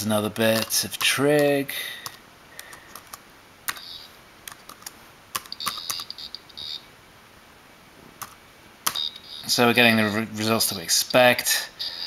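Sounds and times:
laptop keyboard typing: 0:00.5 - 0:01.1, 0:02.0 - 0:06.8, 0:08.2 - 0:09.4
short high-pitched beeps: 0:05.5 - 0:06.9, 0:08.9 - 0:10.2.

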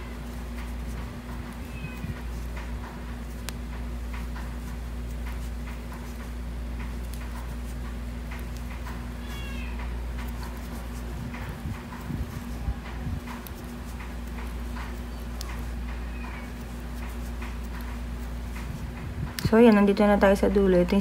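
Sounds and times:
low electrical hum: 0:00.0 - 0:21.0
cat meowing: 0:01.7 - 0:02.2, 0:09.2 - 0:10.0, 0:16.0 - 0:16.6.

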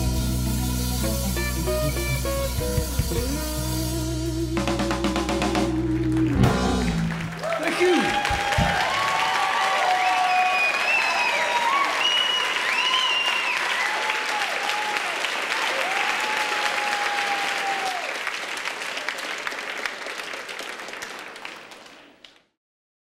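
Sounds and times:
audience applauding and cheering: 0:05.4 - 0:22.5.

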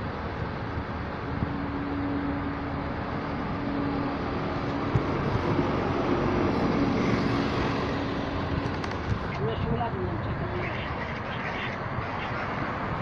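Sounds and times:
city street traffic: 0:00.0 - 0:13.0.

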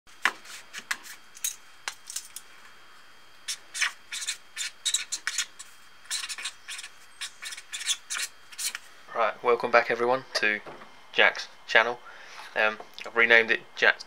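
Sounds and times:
marker scratching on paper: 0:03.5 - 0:08.9.

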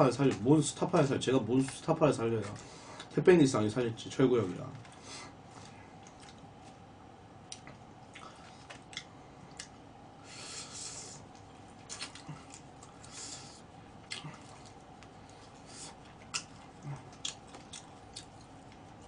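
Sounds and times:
soft chewing: 0:04.7 - 0:19.0.

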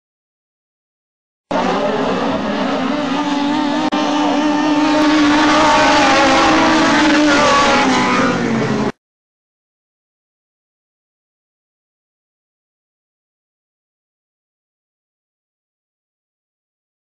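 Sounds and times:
race car engines: 0:01.5 - 0:09.0.

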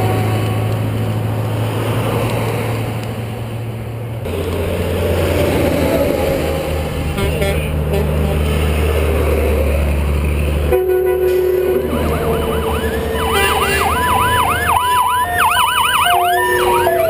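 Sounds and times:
truck diesel engine passing: 0:00.0 - 0:17.0
ambulance siren wailing: 0:10.7 - 0:17.0.

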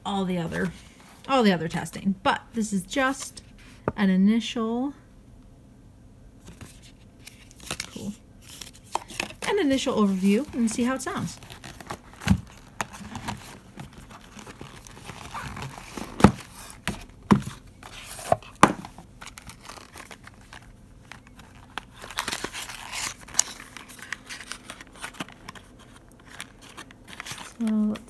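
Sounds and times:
cardboard packaging handled: 0:06.5 - 0:28.0
tissue paper crinkling: 0:06.7 - 0:16.8, 0:19.1 - 0:28.0.

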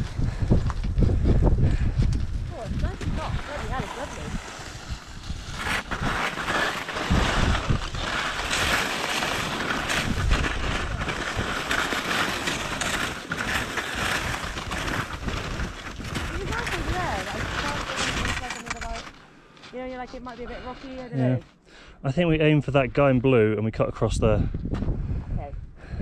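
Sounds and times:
wind rumbling on microphone: 0:00.0 - 0:19.2, 0:22.3 - 0:26.0
skis scraping on snow: 0:02.2 - 0:21.4.

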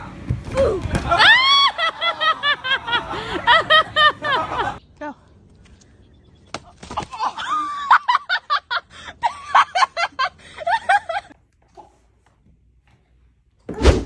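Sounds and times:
person laughing hard: 0:01.1 - 0:04.8.

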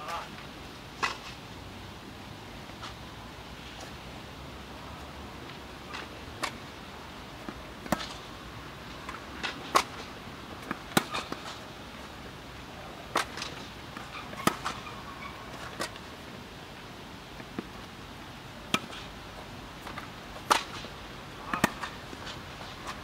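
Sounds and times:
low hiss: 0:00.0 - 0:23.0
racket striking tennis ball: 0:01.0 - 0:01.4, 0:07.5 - 0:08.3, 0:09.0 - 0:11.6, 0:13.1 - 0:14.9, 0:18.7 - 0:19.1, 0:19.8 - 0:23.0
tennis ball bouncing: 0:07.4 - 0:08.3, 0:09.0 - 0:12.1, 0:13.1 - 0:16.0, 0:18.7 - 0:19.1, 0:19.8 - 0:23.0.

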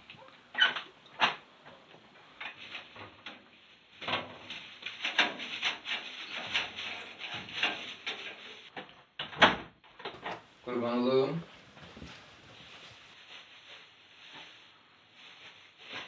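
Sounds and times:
wooden door clicks and knocks: 0:09.2 - 0:10.4.

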